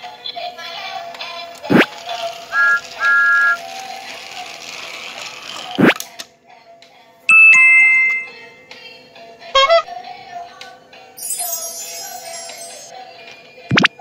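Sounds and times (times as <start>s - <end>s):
quick falling swoosh: 1.7s - 1.9s
bright whistle-like chord: 2.5s - 3.6s, 7.3s - 8.4s, 11.2s - 12.9s
train whistle tooting: 2.5s - 3.6s, 9.6s - 9.9s.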